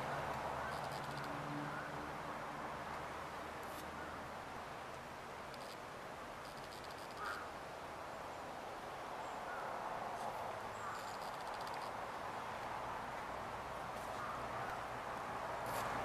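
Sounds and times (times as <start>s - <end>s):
outdoor background noise: 0.0s - 16.0s
short bird calls: 7.0s - 7.5s.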